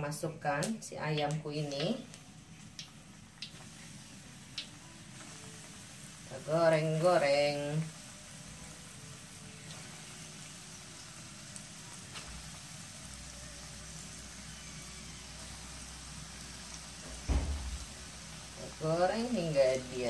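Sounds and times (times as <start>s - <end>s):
chicken deep-frying in oil: 0.4s - 20.0s
low thump: 17.1s - 18.0s.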